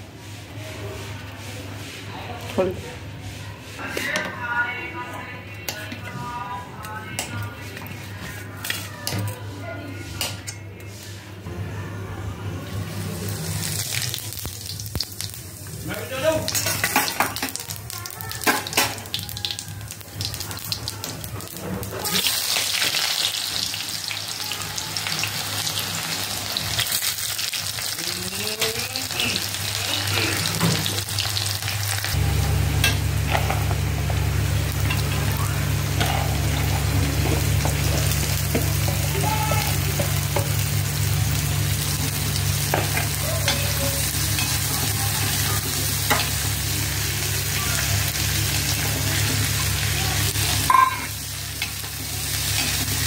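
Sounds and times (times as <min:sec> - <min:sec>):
hot oil sizzling: 0:12.7 - 0:53.0.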